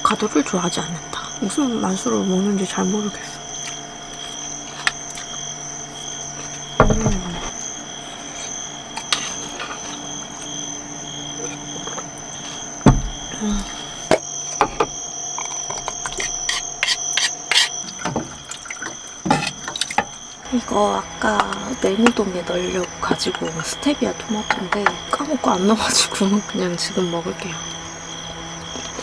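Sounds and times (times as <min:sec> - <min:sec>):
high-pitched whine: 0:00.0 - 0:29.0
tableware knocking on wooden table: 0:06.8 - 0:07.5, 0:12.8 - 0:13.2.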